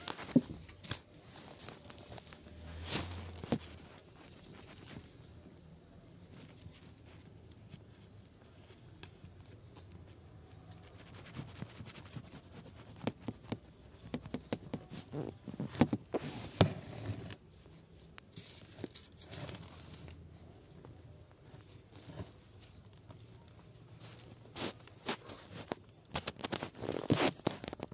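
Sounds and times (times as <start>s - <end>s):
kitten claws scratching hard floor: 10.8s - 17.4s.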